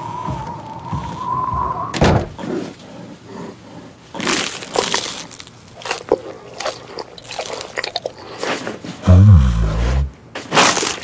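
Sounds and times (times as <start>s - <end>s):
brittle crackling and crunching: 4.2s - 8.7s, 10.4s - 11.0s.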